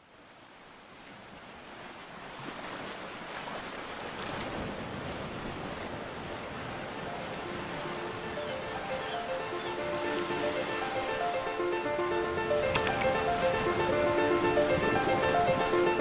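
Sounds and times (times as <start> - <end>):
waves breaking: 0.0 - 16.0.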